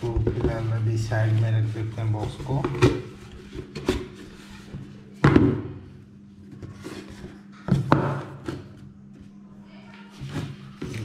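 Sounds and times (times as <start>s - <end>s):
cardboard scraping: 6.5s - 7.5s.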